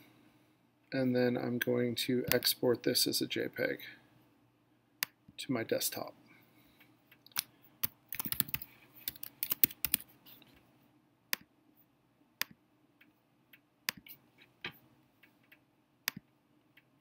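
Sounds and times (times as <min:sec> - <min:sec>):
typing on keyboard: 0:07.3 - 0:10.0
mouse clicks: 0:15.4 - 0:16.9.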